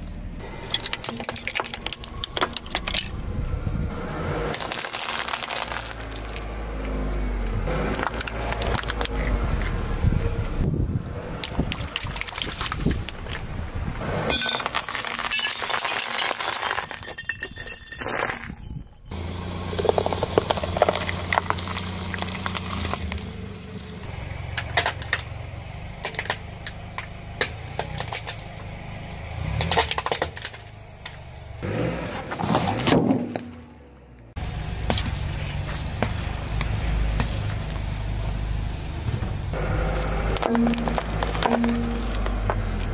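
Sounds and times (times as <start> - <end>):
car tyre crushing objects: 0.4 - 3.2, 4.0 - 9.8, 11.3 - 38.3, 39.0 - 42.9
bell pepper crunching: 4.5 - 6.4.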